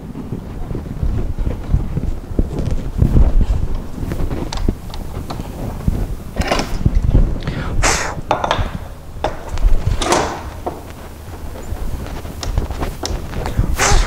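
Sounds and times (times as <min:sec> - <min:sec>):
steady low rumble: 0:00.0 - 0:14.0
metal clamps and boards handled: 0:06.4 - 0:07.0, 0:08.3 - 0:11.0.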